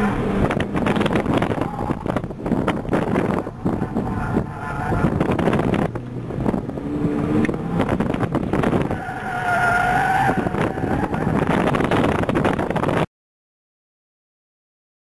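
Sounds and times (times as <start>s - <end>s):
car engine revving: 0.0s - 13.0s
road and wind noise: 0.0s - 13.1s
tyres squealing: 8.8s - 11.5s.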